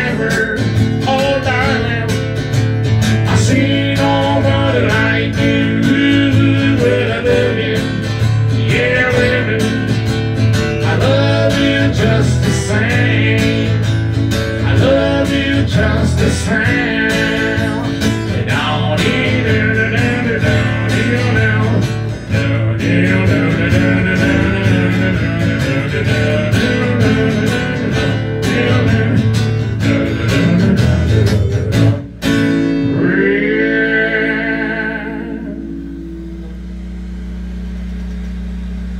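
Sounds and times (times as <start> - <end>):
strummed guitar: 0.0 - 37.0
person singing: 3.3 - 10.0, 10.8 - 13.8, 14.6 - 29.4, 32.8 - 36.1
low hum: 32.7 - 38.9.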